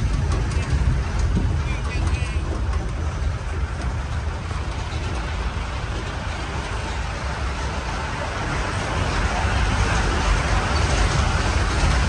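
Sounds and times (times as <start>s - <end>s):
vehicle engine and road noise: 0.0s - 12.0s.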